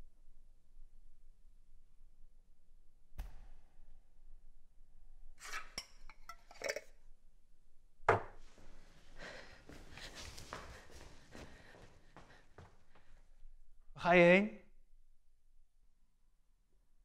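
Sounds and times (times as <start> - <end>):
glassware and crockery clinking: 5.8 - 6.9.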